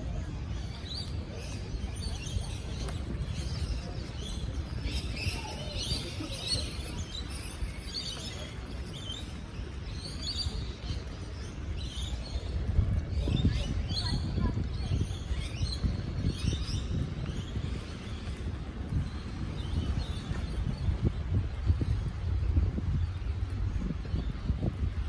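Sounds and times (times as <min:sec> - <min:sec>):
many birds chirping: 0:00.0 - 0:25.0
steady low rumble: 0:10.7 - 0:25.0.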